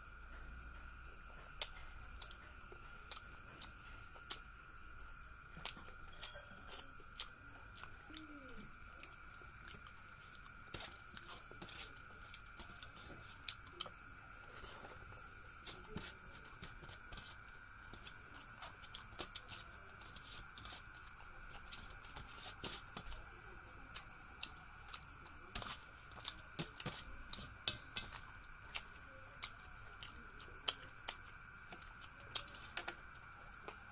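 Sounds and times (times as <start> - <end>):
faint high whine: 0.0 - 33.9
chewing with mouth clicks: 0.8 - 4.5, 5.5 - 15.0, 15.6 - 33.9
fingers mixing rice on steel plate: 9.0 - 23.3, 23.9 - 33.9.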